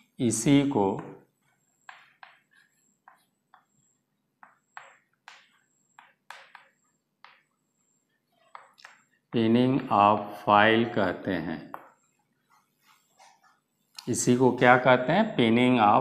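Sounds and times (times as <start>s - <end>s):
chalk scratching on blackboard: 0.5s - 9.2s, 11.8s - 13.6s.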